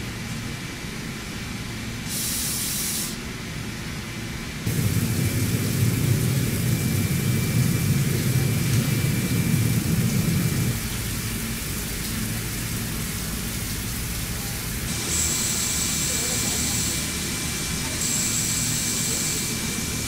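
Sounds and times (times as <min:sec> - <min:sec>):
hiss of coolant spray: 0:02.0 - 0:03.3, 0:04.7 - 0:20.0
machine milling steel: 0:04.7 - 0:10.8, 0:14.4 - 0:20.0.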